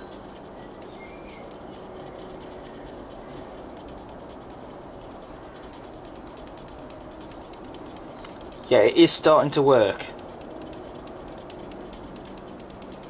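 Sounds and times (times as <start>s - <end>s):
stick scratching on plastic: 0.0s - 13.0s.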